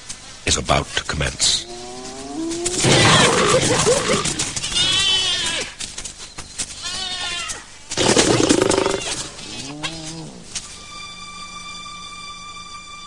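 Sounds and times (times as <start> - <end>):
snarling and growling: 1.6 - 4.6, 8.0 - 10.6
hyena cries: 1.6 - 5.7.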